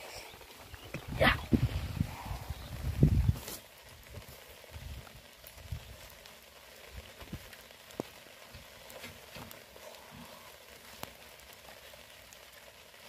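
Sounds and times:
light rain pattering: 0.0s - 13.0s.

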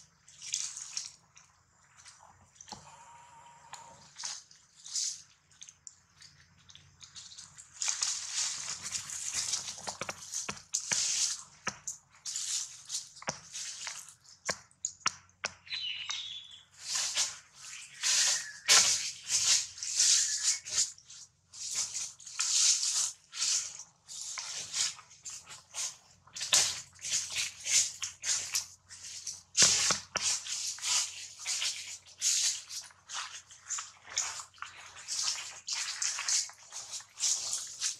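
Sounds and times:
dry leaves rustling and crackling: 7.2s - 11.6s, 12.2s - 14.2s, 15.7s - 37.9s.

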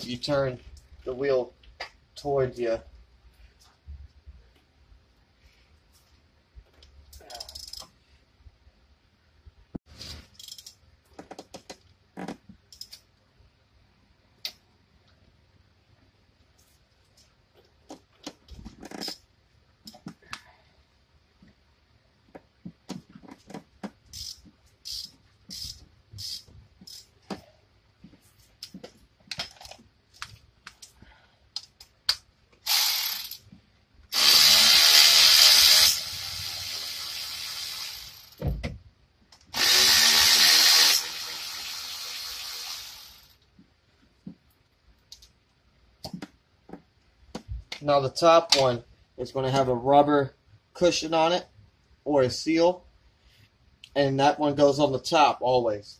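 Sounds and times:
hand ratchet clicking: 7.2s - 7.9s, 10.4s - 10.8s, 24.2s - 27.1s, 32.7s - 33.4s
power tool running: 34.1s - 38.4s, 39.5s - 43.3s.

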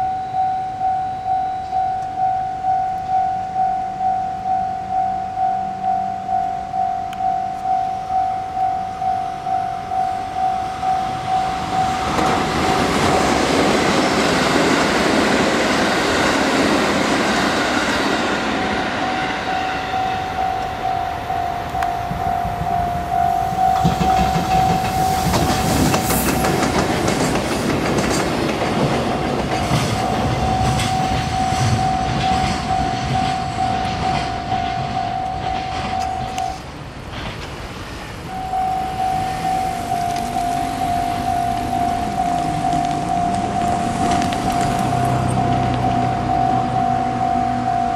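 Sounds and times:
level-crossing alarm tone: 0.0s - 27.4s, 28.8s - 36.6s, 38.3s - 47.9s
freight train passing: 0.0s - 47.9s
wheels clattering over rail joints: 22.0s - 38.2s.

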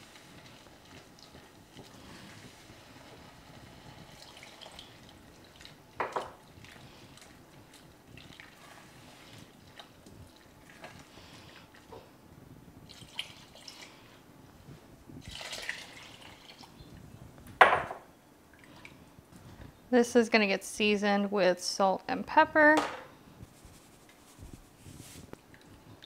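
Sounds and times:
milk pouring into a pan: 0.0s - 11.1s, 15.2s - 16.7s.

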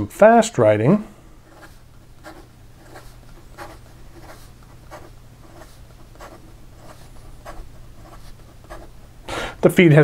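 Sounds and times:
fountain pen scratching paper: 1.4s - 8.9s.

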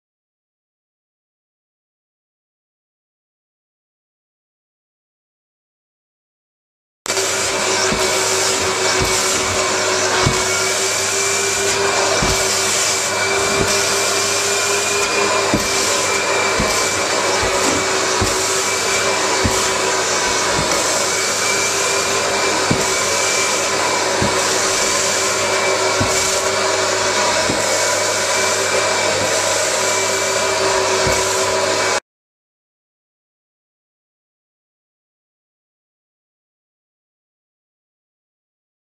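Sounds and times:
suction motor whining: 7.1s - 32.0s.

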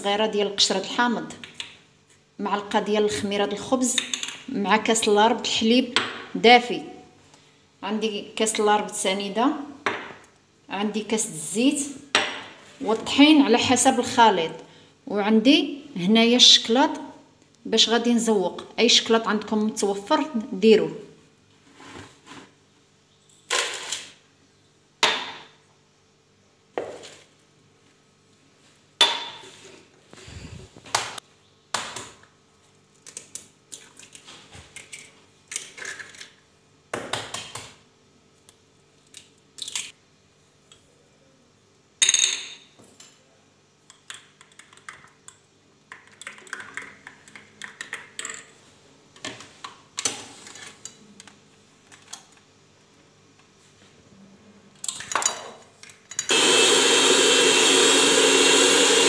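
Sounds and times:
electric hand mixer running: 56.3s - 59.0s.

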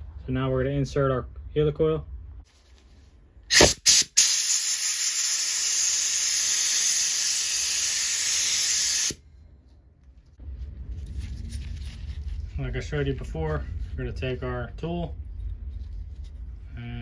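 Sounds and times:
pressurised spray hissing: 3.5s - 9.2s.

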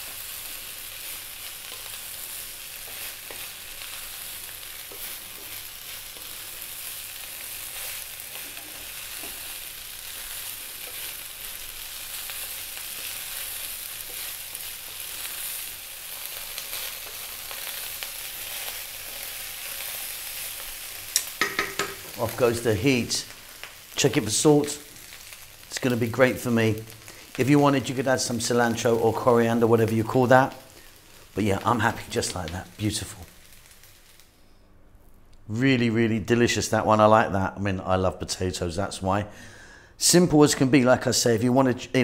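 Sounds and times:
rice sizzling in a wok: 0.0s - 34.4s.

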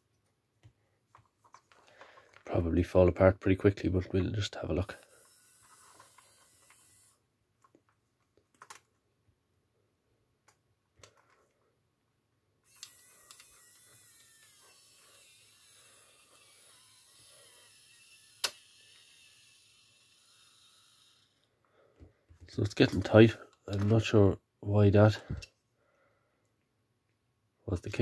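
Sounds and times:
small electric motors running: 4.8s - 7.2s, 12.7s - 21.5s
sharp click: 18.4s - 18.6s.

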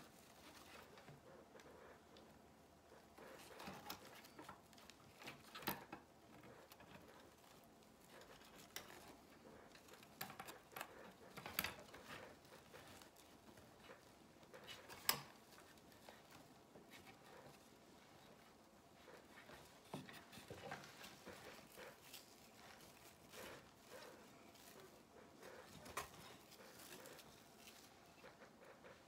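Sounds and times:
mesh rustling and crinkling: 3.0s - 29.0s.

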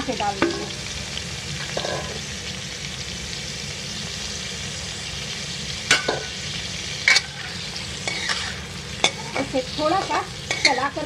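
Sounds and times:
mango slices sizzling in oil: 0.0s - 11.0s.

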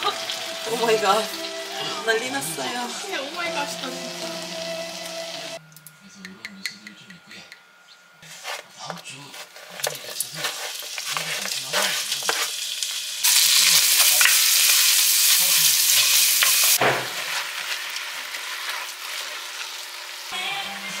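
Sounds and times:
food sizzling in a pan: 0.0s - 5.6s, 9.5s - 21.0s
kitchen utensils clinking and scraping: 8.3s - 12.6s.

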